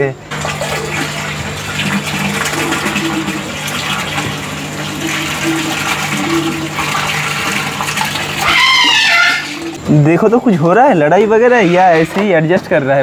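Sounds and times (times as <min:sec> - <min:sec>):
water splashing in a fish tank: 0:00.2 - 0:12.4.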